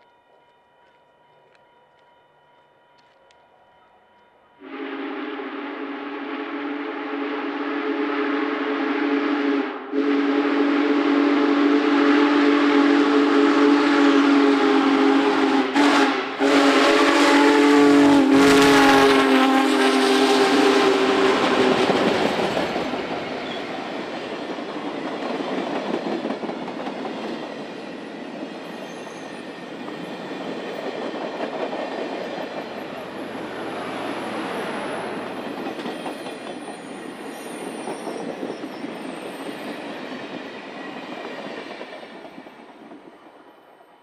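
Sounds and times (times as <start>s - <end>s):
locomotive chime whistle blasts: 3.4s - 21.9s
train rumbling and clattering: 13.9s - 44.0s.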